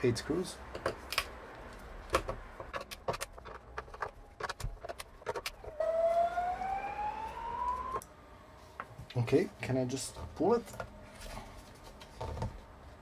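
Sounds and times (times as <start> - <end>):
whistle-like tone rising: 5.6 - 8.0.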